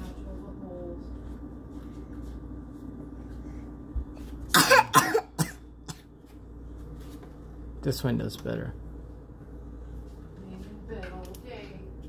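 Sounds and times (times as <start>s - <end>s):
person coughing: 4.5s - 6.1s.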